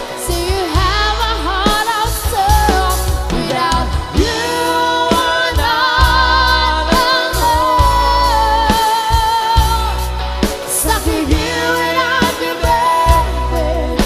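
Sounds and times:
person singing with vibrato: 0.0 - 14.0
bass notes: 0.2 - 14.0.

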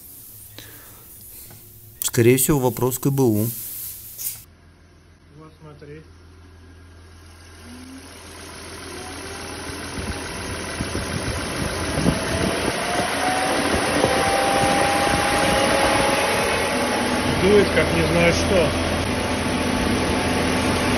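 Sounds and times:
electric cooling fan rushing air: 7.6 - 20.9.

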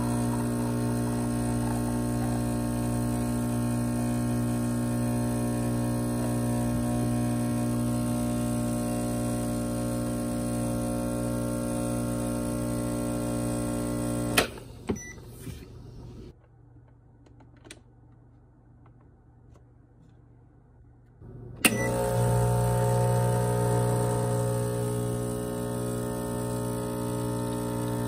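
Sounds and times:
espresso machine pump buzzing: 0.0 - 15.3, 21.6 - 28.0.

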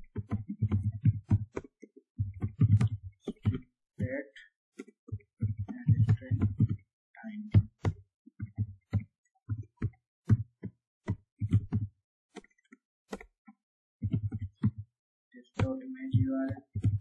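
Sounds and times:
computer keyboard typing: 4.8 - 6.8, 15.6 - 17.0.

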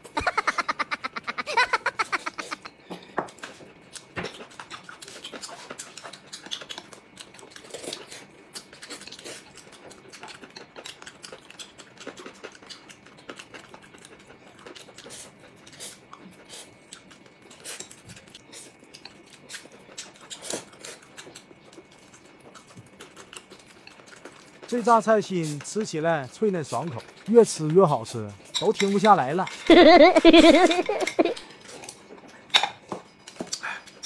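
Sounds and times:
chewing: 0.0 - 29.7, 30.4 - 34.0
chopsticks clicking on bowls: 28.4 - 29.8.

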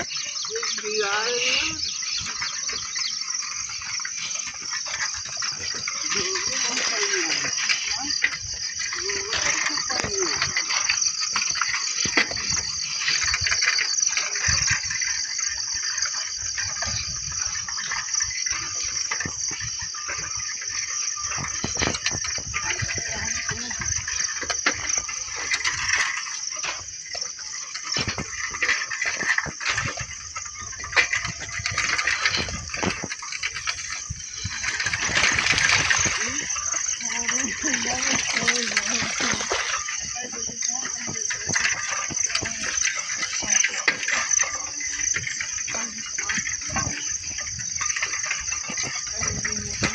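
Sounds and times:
bicycle rattling over bumps: 0.0 - 49.9
insect chorus: 0.0 - 49.9
wind rumbling: 0.0 - 49.9.

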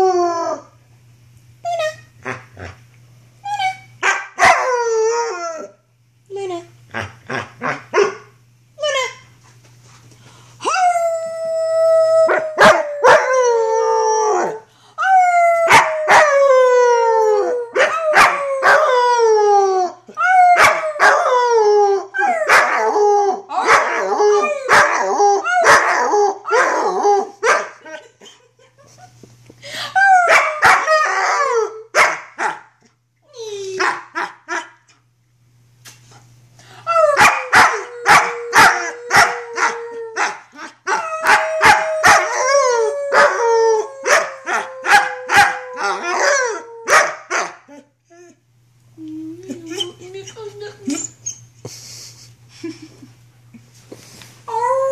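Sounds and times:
wolfdog howling: 10.7 - 14.6, 36.9 - 47.8.

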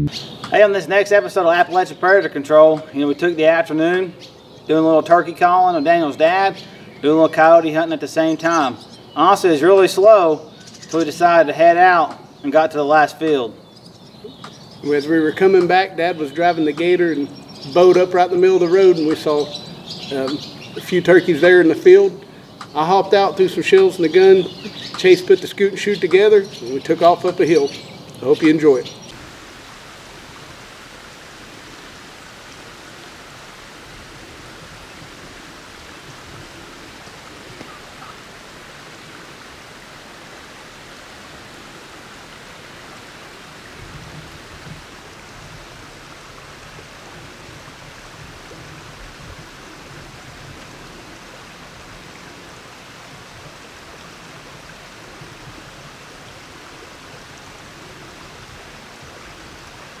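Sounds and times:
steady outdoor hiss: 0.0 - 60.0.

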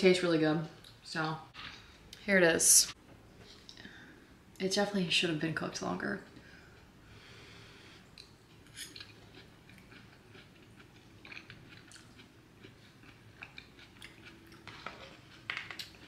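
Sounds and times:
person chewing food: 6.7 - 16.0.

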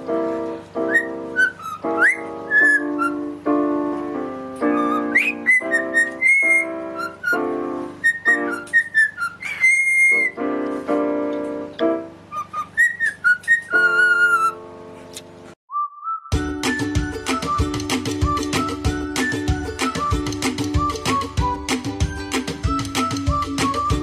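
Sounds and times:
piano chords: 0.0 - 15.6, 16.3 - 24.0
cockatiel whistling: 0.8 - 3.3, 4.6 - 10.4, 12.3 - 14.6.

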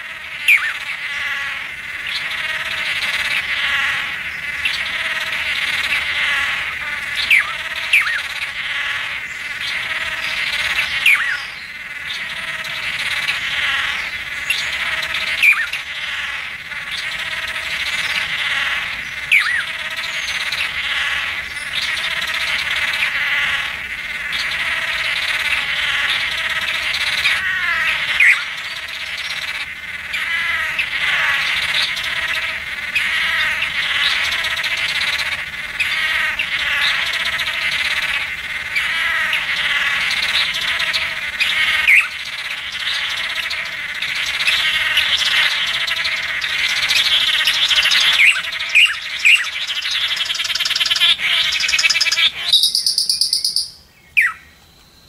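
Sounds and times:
chorus of bird calls: 0.0 - 55.0
high clear bird notes: 50.7 - 54.5.

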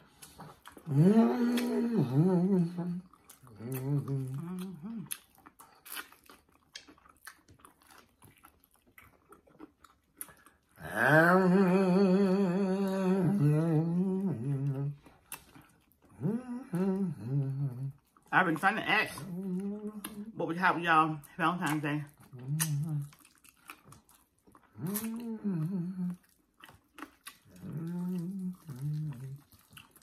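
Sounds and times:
wet chewing and mouth clicks: 0.0 - 30.0
person humming: 0.8 - 5.1, 10.8 - 15.0, 16.2 - 18.0, 19.2 - 20.4, 22.4 - 23.1, 24.8 - 26.2, 27.6 - 29.4.

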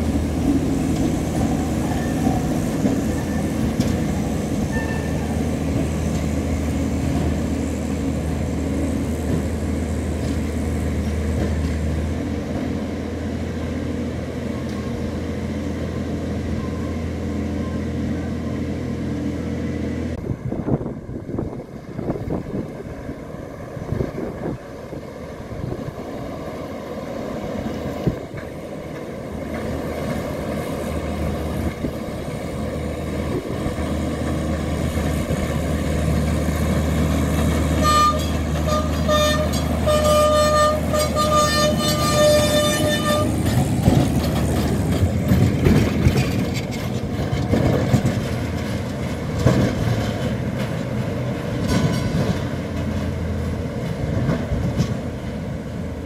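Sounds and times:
tram running on rails: 0.0 - 56.0
wheels knocking on rails: 33.5 - 55.4.

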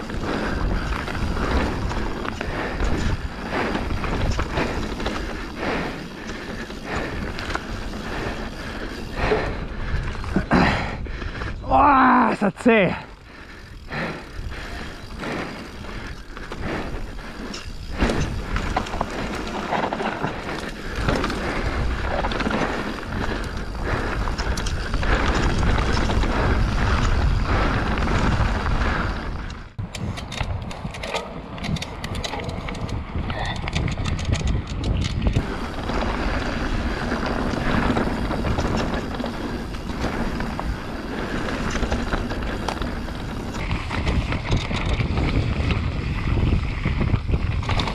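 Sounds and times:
tyres rolling over gravelly dirt: 0.0 - 29.6, 31.9 - 47.9
bike rattling over bumps: 0.0 - 47.9
wind rushing over microphone: 0.0 - 47.9
sharp ticks: 20.6 - 28.2.

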